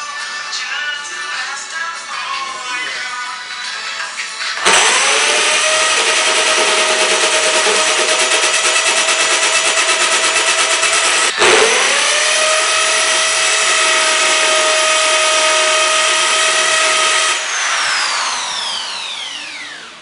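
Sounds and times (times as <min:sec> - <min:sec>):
power drill grinding into screen: 0:04.6 - 0:20.0.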